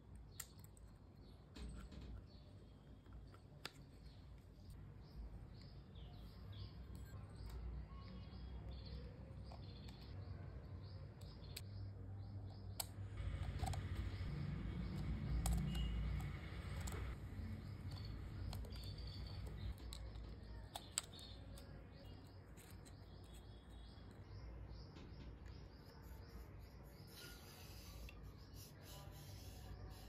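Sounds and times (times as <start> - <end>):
hex key turning small screws: 13.4 - 23.6.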